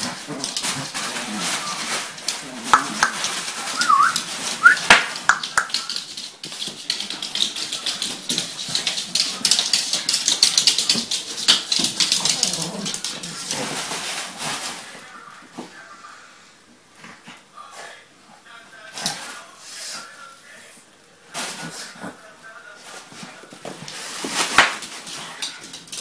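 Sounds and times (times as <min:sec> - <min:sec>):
bubble wrap crinkling: 0:00.0 - 0:06.5, 0:07.7 - 0:15.2
dog whines: 0:03.8 - 0:04.9.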